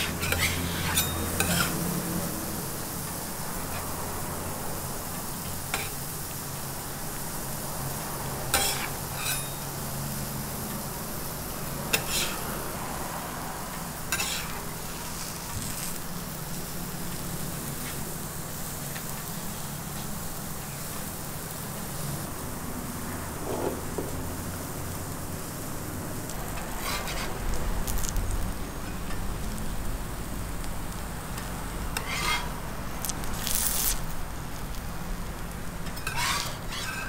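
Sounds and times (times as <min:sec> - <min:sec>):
metal spatula scraping griddle: 0:00.0 - 0:01.9, 0:08.5 - 0:09.6, 0:11.9 - 0:12.5, 0:14.1 - 0:16.0, 0:23.4 - 0:23.8, 0:26.5 - 0:27.5, 0:31.9 - 0:34.0, 0:35.8 - 0:37.0
crepe sizzling on griddle: 0:00.0 - 0:37.0.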